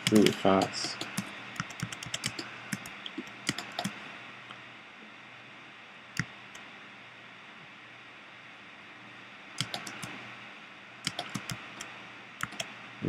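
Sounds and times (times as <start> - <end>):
computer keyboard keys clicking: 0.0 - 4.0, 9.6 - 10.1, 11.0 - 12.7
faint steady hiss: 0.0 - 13.0.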